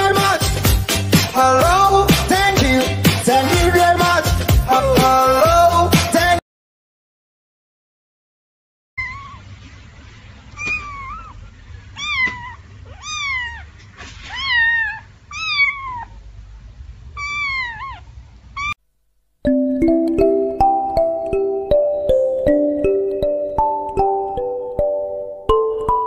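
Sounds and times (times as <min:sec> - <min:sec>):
kitten mewing: 0:09.0 - 0:09.4, 0:10.5 - 0:16.2, 0:17.1 - 0:18.8.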